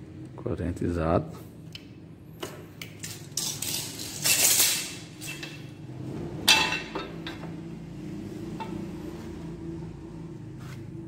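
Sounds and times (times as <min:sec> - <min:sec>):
hand tools clicking and rattling: 0:02.8 - 0:05.6.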